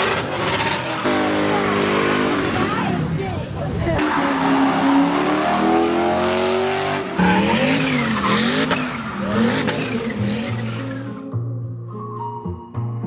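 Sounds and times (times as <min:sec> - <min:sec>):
car engine revving: 0:00.0 - 0:11.3
tyres squealing: 0:06.6 - 0:11.3.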